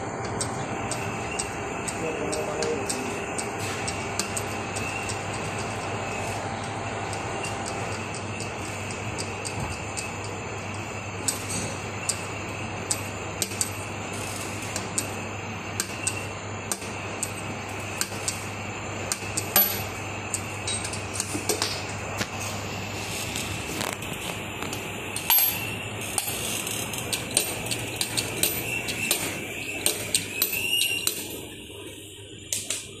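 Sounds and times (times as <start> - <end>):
steady hum: 0.0 - 33.0
metal valve clicking and clinking: 19.1 - 21.7, 24.6 - 31.4.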